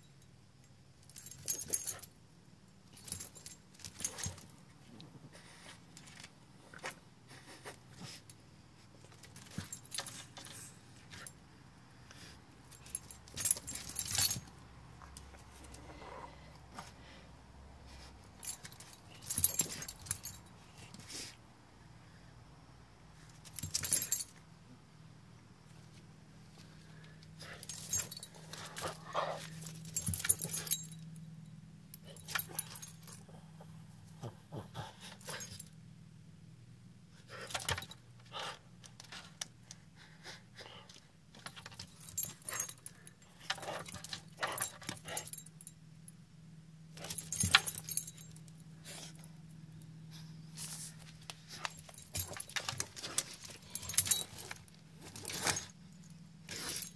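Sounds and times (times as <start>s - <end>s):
faint low hum: 0.0s - 56.9s
collar jangling: 1.0s - 2.2s, 2.8s - 4.6s, 9.0s - 11.4s, 12.7s - 15.9s, 18.3s - 21.0s, 23.4s - 24.4s, 27.3s - 34.2s, 34.8s - 35.8s, 37.2s - 38.3s, 41.3s - 45.8s, 46.9s - 56.9s.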